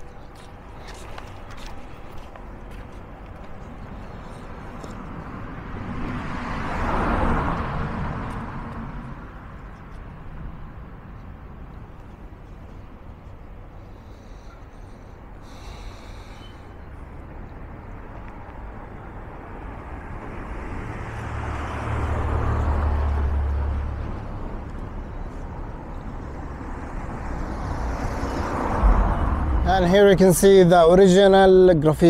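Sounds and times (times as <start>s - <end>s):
street traffic: 0.0s - 32.0s
vehicle passing close by: 4.6s - 9.6s, 19.6s - 24.9s, 26.0s - 30.9s.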